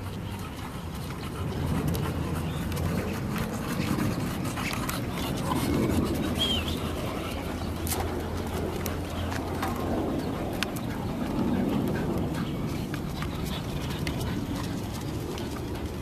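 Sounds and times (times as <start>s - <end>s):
footsteps on pavement: 0.0s - 16.0s
bird chirp: 5.1s - 7.9s.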